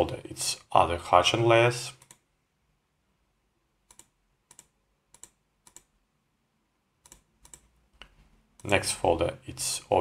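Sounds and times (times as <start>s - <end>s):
computer mouse clicks: 2.0s - 2.3s, 3.8s - 6.0s, 7.0s - 8.8s.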